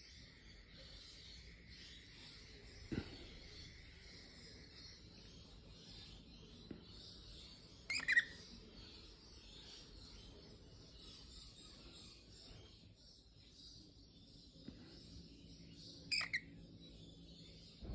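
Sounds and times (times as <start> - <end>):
cockatiel chirp: 7.9 - 8.4, 16.1 - 16.5.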